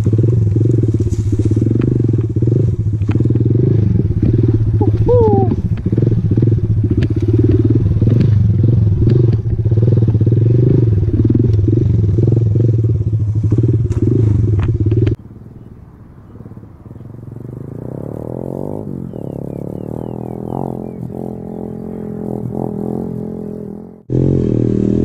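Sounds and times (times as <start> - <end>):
motorcycle knocks and clatter: 0.0 - 4.7, 5.6 - 15.2
motorcycle engine running at low revs: 0.0 - 25.0.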